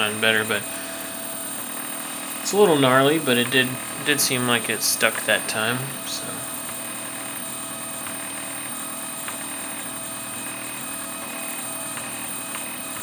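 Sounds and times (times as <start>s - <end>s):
cooling fans humming: 0.0s - 13.0s
stepper motors whining: 0.0s - 13.0s.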